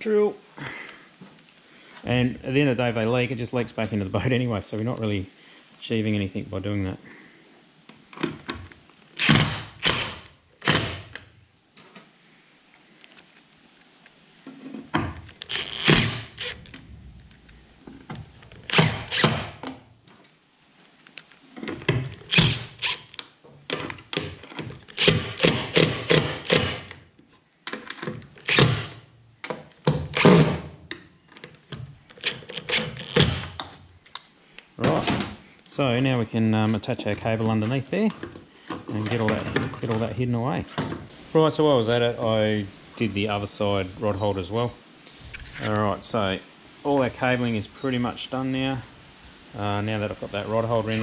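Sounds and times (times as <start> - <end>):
cordless drill driving screws: 9.2 - 11.0, 15.4 - 16.6, 18.7 - 19.5, 22.3 - 23.2, 24.9 - 27.0, 28.4 - 29.0, 32.2 - 33.5.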